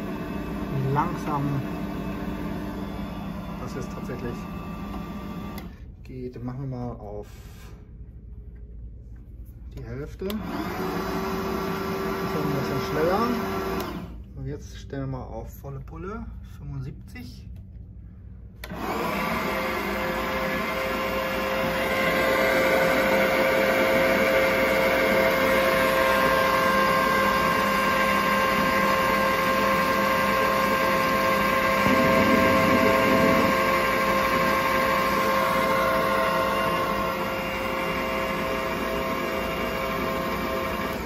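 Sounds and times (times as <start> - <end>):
band saw motor and blade whine: 26.6 - 40.0.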